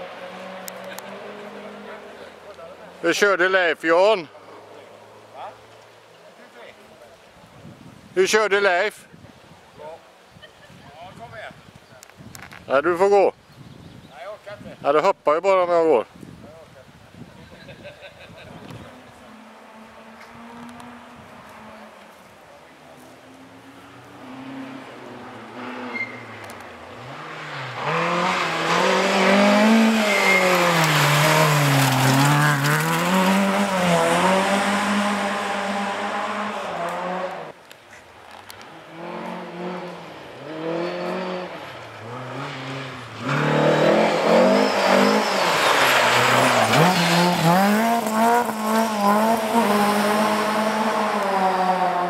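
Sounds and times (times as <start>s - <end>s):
rally car engines revving: 0.0s - 3.5s, 18.6s - 37.6s, 38.5s - 52.0s.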